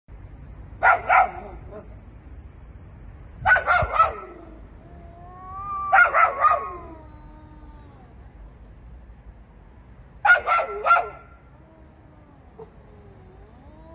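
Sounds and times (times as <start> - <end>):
dogs barking: 0.8 - 1.9, 3.4 - 4.6, 5.8 - 6.9, 10.2 - 11.4
long drawn-out cry: 4.8 - 8.4, 11.4 - 13.9.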